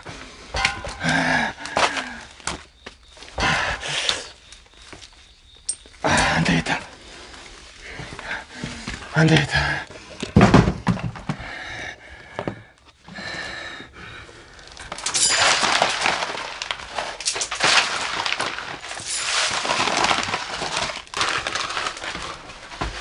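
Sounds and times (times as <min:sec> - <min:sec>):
grain scattering on debris: 0:14.9 - 0:22.2.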